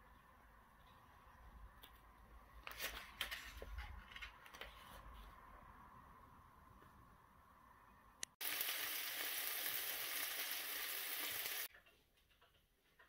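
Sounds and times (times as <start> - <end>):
food sizzling in hot oil: 8.4 - 11.7.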